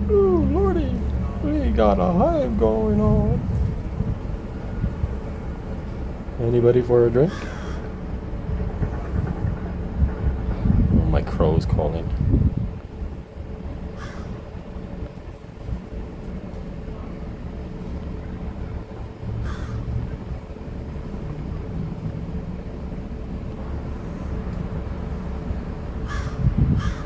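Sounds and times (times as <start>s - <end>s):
low background rumble: 0.0s - 27.0s
crow cawing: 7.3s - 7.9s, 14.0s - 14.4s, 19.4s - 19.9s, 26.0s - 27.0s.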